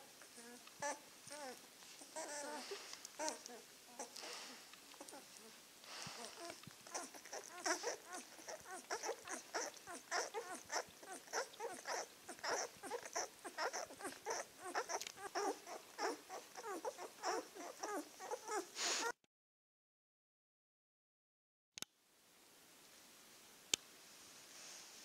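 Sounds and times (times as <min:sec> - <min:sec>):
puppies squeaking and whimpering: 0:00.4 - 0:05.3, 0:06.1 - 0:19.1.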